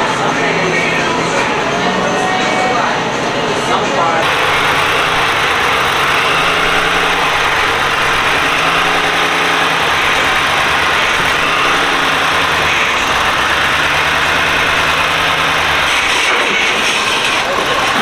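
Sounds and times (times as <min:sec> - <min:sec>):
truck engine at low revs: 0:04.2 - 0:18.0.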